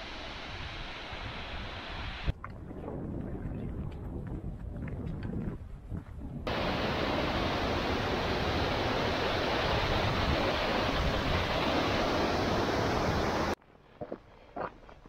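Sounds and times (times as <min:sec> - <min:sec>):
river rushing over rocks: 0:06.5 - 0:13.6.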